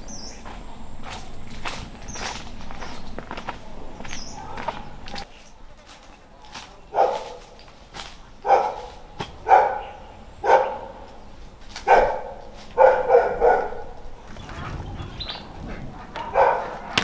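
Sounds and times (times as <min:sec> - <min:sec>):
dog barking: 0:04.3 - 0:04.9, 0:06.9 - 0:07.5, 0:08.4 - 0:11.2, 0:11.8 - 0:17.0.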